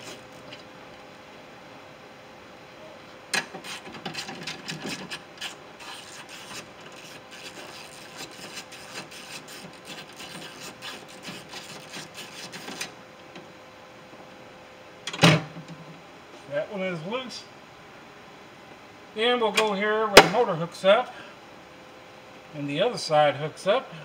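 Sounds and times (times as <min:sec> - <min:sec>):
metal rubbing on metal: 0:03.4 - 0:12.9.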